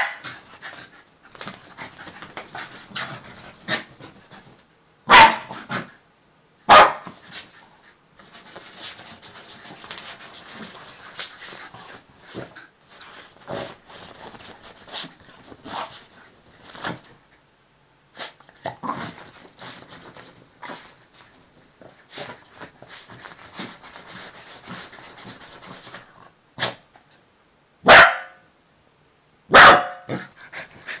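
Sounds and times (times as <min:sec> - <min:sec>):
dog barking: 0:00.0 - 0:00.2, 0:05.1 - 0:05.6, 0:06.7 - 0:07.1, 0:27.8 - 0:28.4, 0:29.5 - 0:30.2
paws scrabbling: 0:00.6 - 0:04.6, 0:08.2 - 0:17.2
fabric rustling: 0:08.2 - 0:17.2.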